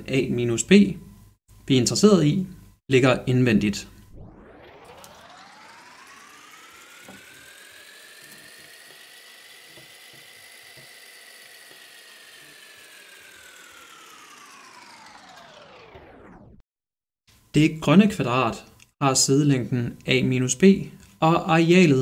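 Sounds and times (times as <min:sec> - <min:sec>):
whirring sound effect rising and falling: 0:03.6 - 0:16.6.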